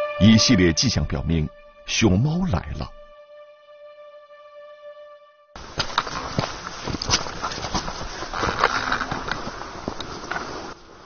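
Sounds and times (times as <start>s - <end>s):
footsteps on leafy dirt trail: 5.6s - 10.9s
clothing rustle: 5.6s - 11.0s.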